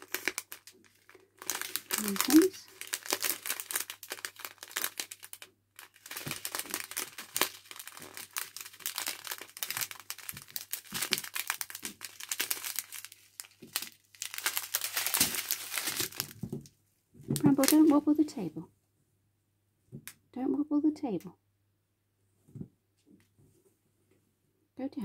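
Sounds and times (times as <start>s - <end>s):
plastic bags crinkling: 0.0s - 16.7s, 17.4s - 18.2s.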